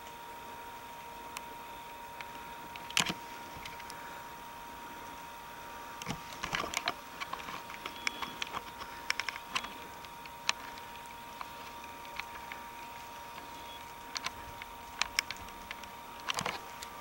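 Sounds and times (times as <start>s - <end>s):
faint high whine: 0.0s - 17.0s
camera handling clicks and rustles: 2.2s - 4.0s, 6.0s - 17.0s.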